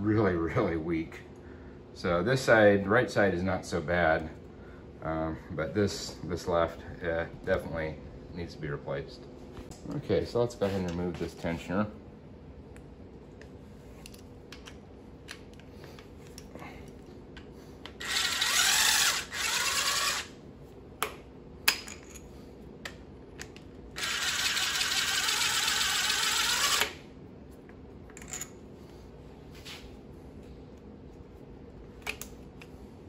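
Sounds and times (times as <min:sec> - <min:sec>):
cordless power tool running: 0:18.0 - 0:20.3, 0:24.0 - 0:27.0.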